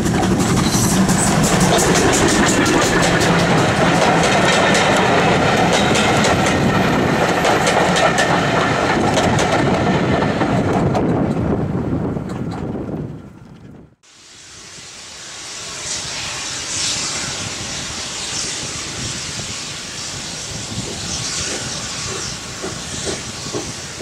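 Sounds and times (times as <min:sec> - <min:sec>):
wheels clicking over rail joints: 0:00.0 - 0:11.6
train rumbling past: 0:00.0 - 0:24.0.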